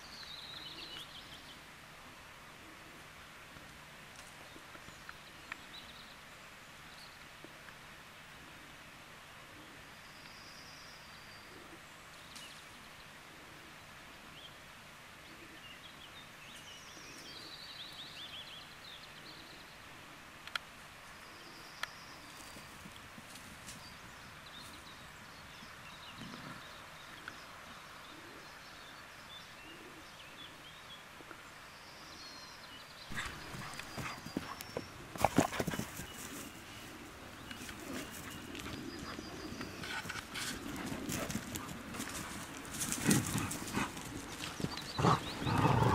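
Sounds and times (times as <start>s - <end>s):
dogs galloping on dry grass: 33.1s - 45.9s.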